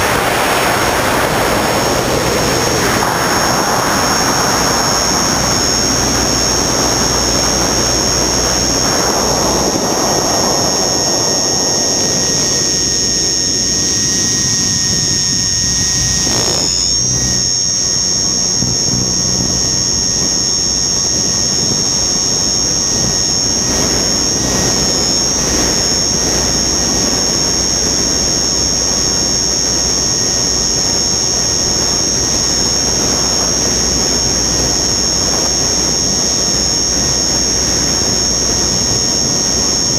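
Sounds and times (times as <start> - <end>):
wind rushing: 0.0 - 12.9
high-pitched motor whine: 0.0 - 39.9.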